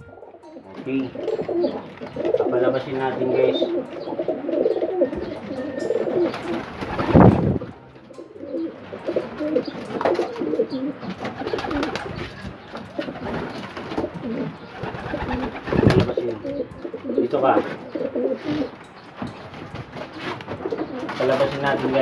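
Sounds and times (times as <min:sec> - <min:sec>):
pigeons cooing: 0:00.0 - 0:22.0.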